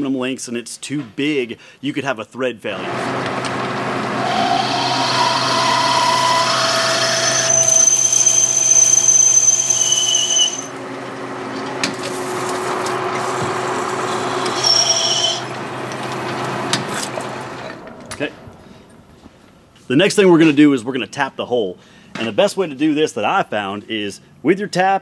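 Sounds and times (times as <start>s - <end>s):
drill whining: 2.8s - 10.8s, 12.6s - 16.0s
lathe motor hum: 2.8s - 17.8s.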